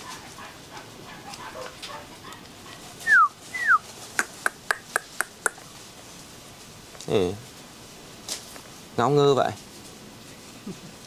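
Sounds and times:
person whistling: 3.1 - 3.8
kissing clicks: 3.1 - 5.6.

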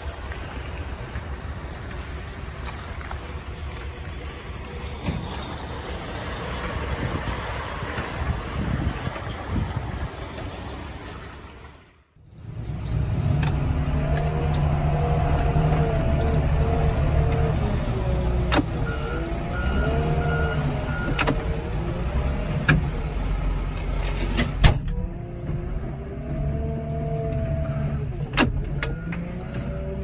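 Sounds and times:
loader engine whining under load: 12.2 - 30.0.

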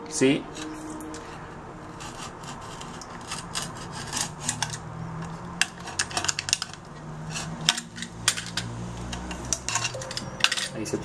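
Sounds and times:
blade scraping and clicking on metal: 0.5 - 10.7.

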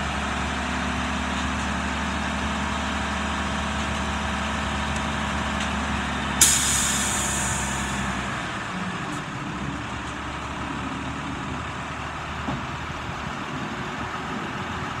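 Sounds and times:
diesel truck engine idling: 0.0 - 15.0
air hiss burst: 6.4 - 8.0.

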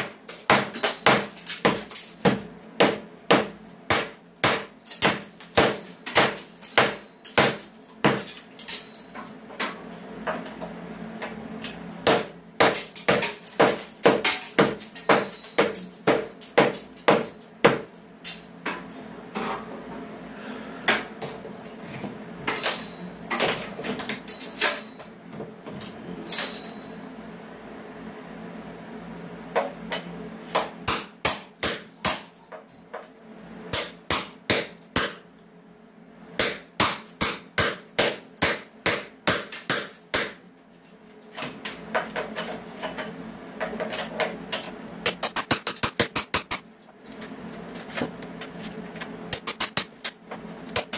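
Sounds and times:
hammer striking masonry wall: 0.0 - 8.4, 12.0 - 17.9, 29.6 - 32.4, 33.7 - 35.2, 36.4 - 40.4.

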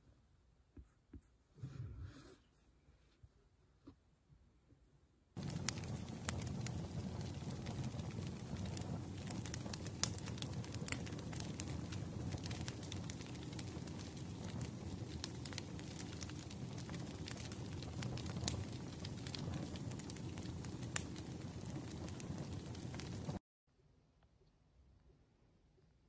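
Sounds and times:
fire low rumble: 5.4 - 23.4
firewood crackling and popping: 5.4 - 23.4.

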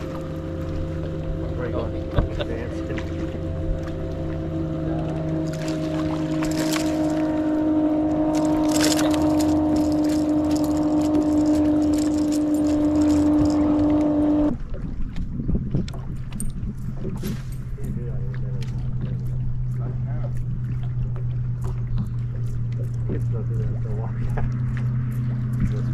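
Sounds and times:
electric trolling motor humming: 0.0 - 14.6, 17.9 - 25.9
low hum: 0.0 - 25.9
water noise: 0.0 - 25.9
wind: 0.0 - 25.9.

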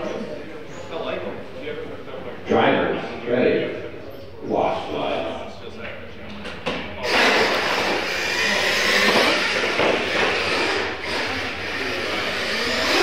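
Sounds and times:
electric motors whining: 7.0 - 13.0.

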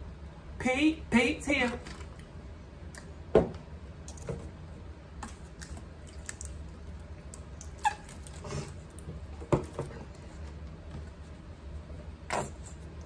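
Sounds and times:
short squeak: 7.8 - 8.1.

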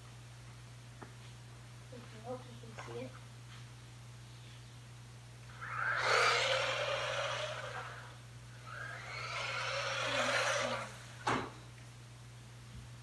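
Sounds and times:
rc car motor whir: 5.6 - 11.0.

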